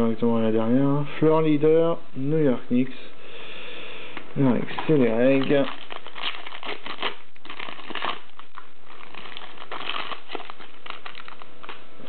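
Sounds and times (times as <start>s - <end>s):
card pack wrapper crinkling: 4.4s - 11.9s.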